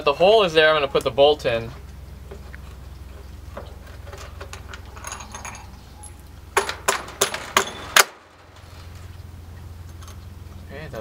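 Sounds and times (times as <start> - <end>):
steady low hum: 0.0 - 11.0
small metal clinks: 2.6 - 9.1, 9.8 - 10.7
sharp knocks of bolt: 6.6 - 8.6.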